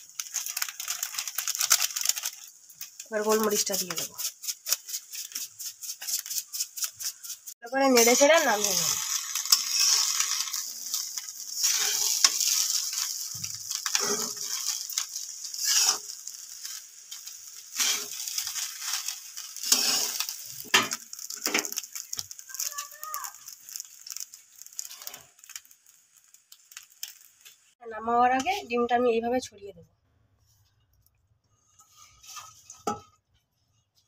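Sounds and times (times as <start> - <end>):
oil sizzling: 0.0 - 29.0
spatula scraping metal pan: 4.0 - 21.6.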